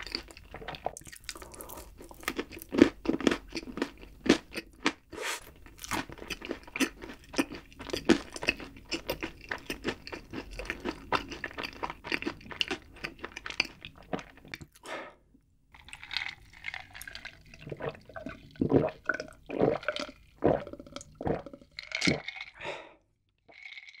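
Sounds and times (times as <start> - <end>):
crunchy chewing: 0.0 - 14.8
gulps and swallows: 16.4 - 23.0.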